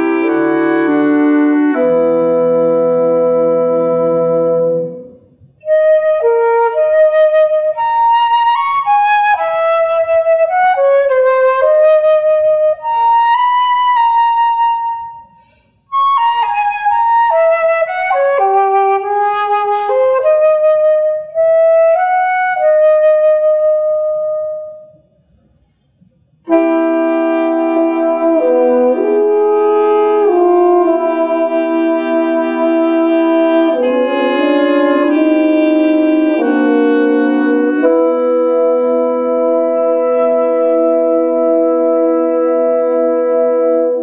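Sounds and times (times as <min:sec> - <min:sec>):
woodwind ensemble chord: 0:00.0 - 0:15.3, 0:26.4 - 0:44.0
solo flute melody: 0:00.0 - 0:25.1, 0:26.4 - 0:44.0.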